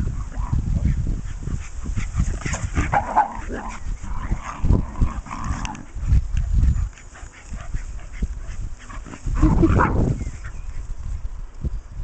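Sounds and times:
dogs playing: 0.0 - 11.2
low rumbling on microphone: 0.0 - 12.0
dog vocal sounds: 5.4 - 10.6.

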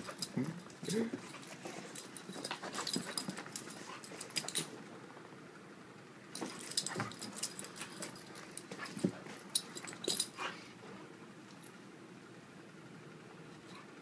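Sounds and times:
dog claws clicking and scuffling: 0.0 - 4.8, 6.4 - 10.6.

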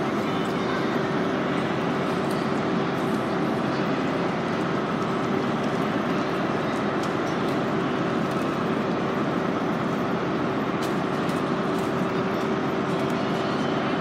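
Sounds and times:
electric train humming and rumbling: 0.0 - 14.0.

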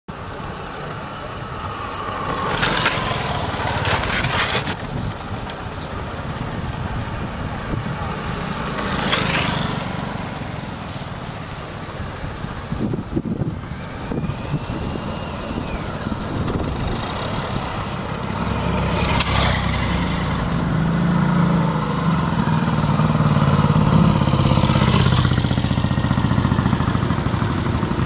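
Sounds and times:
motor scooters riding: 0.1 - 28.0
wind on microphone: 1.4 - 9.1, 11.7 - 20.9.

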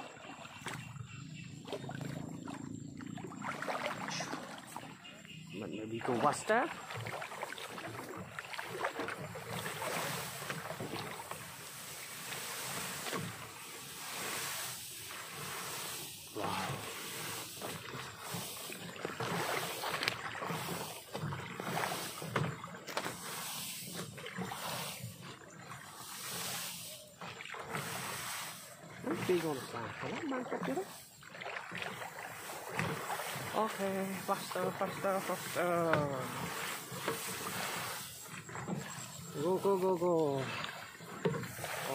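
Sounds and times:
tall grass swishing: 8.6 - 38.4, 41.5 - 41.9.

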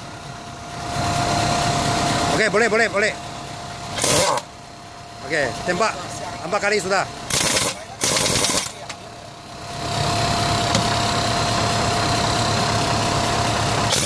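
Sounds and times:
pneumatic impact wrench hammering: 3.9 - 4.5, 7.3 - 9.0.

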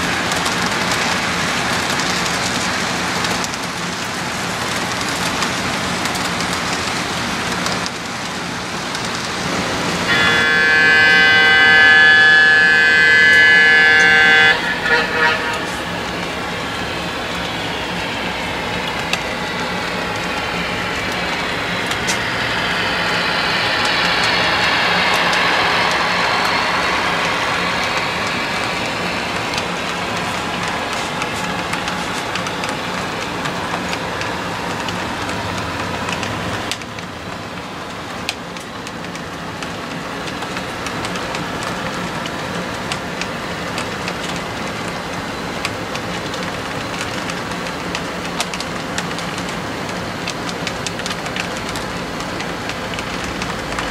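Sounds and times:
model train running rumble: 0.0 - 53.9
light clicks of wheels on track: 17.4 - 53.9.

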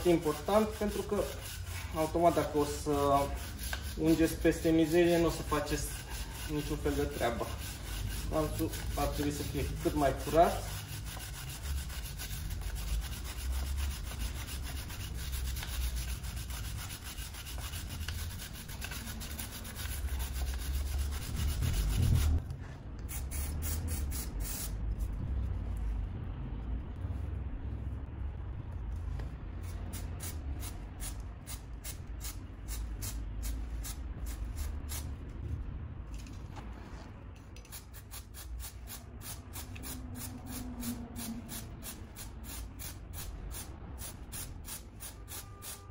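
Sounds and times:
brush scrubbing chain: 0.0 - 22.4
spray can hissing: 23.1 - 24.8, 37.7 - 45.8.

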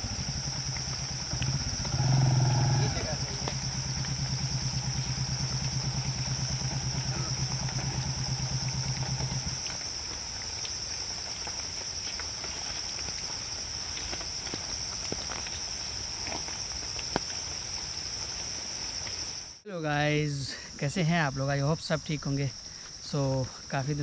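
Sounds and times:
motorcycle engine idling: 0.0 - 10.4
crickets droning: 0.0 - 24.0.

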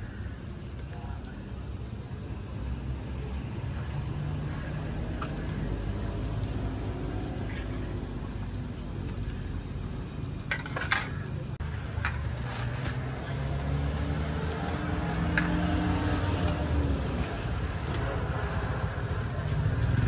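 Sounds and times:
low engine-like rumble: 0.0 - 20.0
dough frying in hot oil: 13.0 - 20.0.

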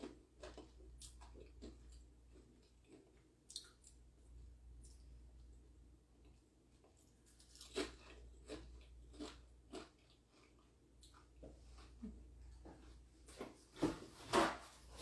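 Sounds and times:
chewing crisp cracker: 0.0 - 4.0, 6.2 - 11.3.

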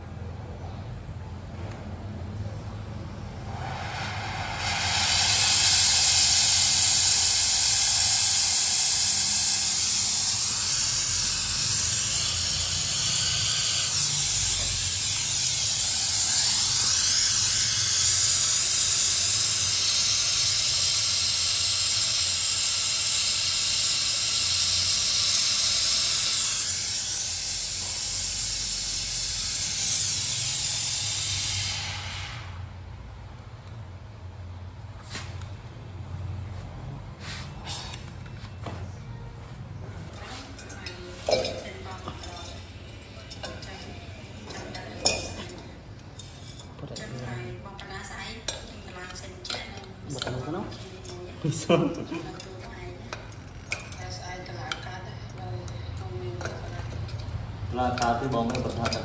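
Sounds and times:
gas torch flame hissing: 2.5 - 32.9.

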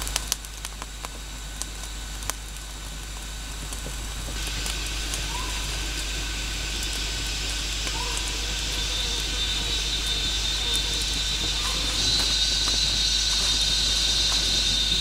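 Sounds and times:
campfire crackling and popping: 0.0 - 15.0
high insect drone: 0.0 - 15.0
short rising chirps: 4.8 - 15.0.

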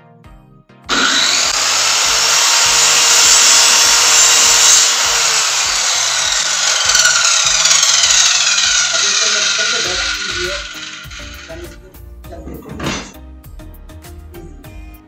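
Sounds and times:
circular saw whirring: 0.9 - 11.8.

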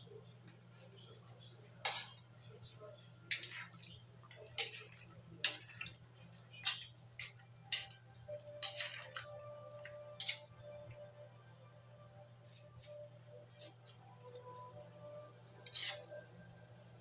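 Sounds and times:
metal ladle scraping a wok: 1.8 - 2.2, 6.6 - 9.2, 10.2 - 10.5, 13.4 - 13.9, 15.6 - 16.2.

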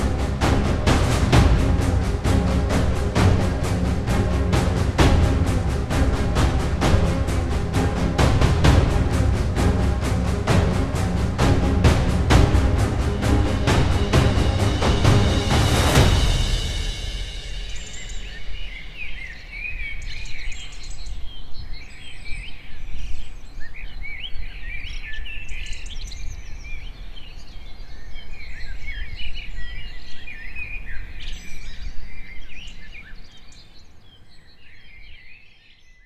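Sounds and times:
low steady rumble: 0.0 - 19.7
small birds chirping and singing: 16.4 - 36.0.

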